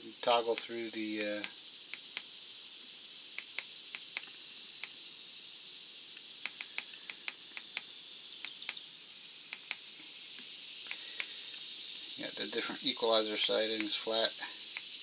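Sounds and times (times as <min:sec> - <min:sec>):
steady high hiss: 0:00.0 - 0:15.0.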